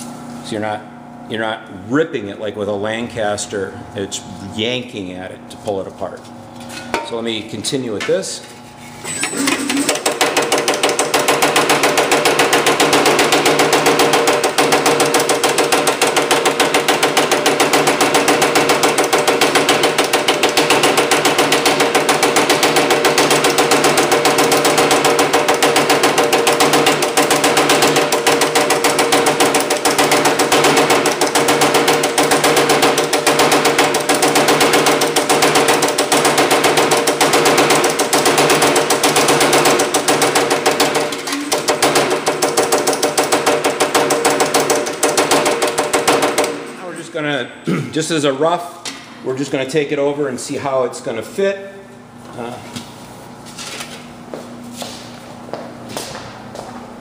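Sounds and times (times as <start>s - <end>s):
steady hum: 0.0s - 11.0s
power hammer striking metal: 9.0s - 46.7s.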